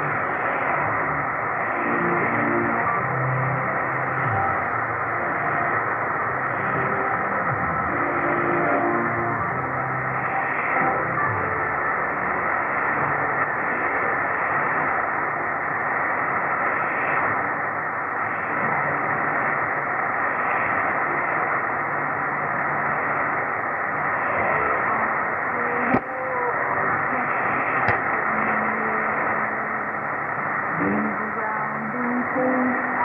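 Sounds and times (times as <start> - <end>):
faint radio station audio: 0.0 - 33.0
radio static hiss: 0.0 - 33.0
sharp static crackles: 0.0 - 33.0.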